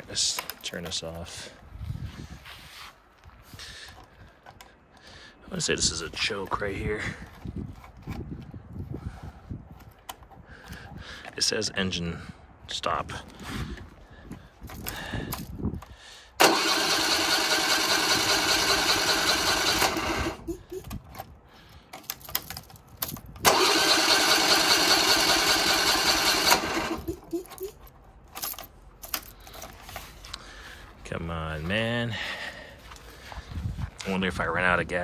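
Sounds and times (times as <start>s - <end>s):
engine starter cranking: 16.4s - 20.9s, 23.4s - 27.8s.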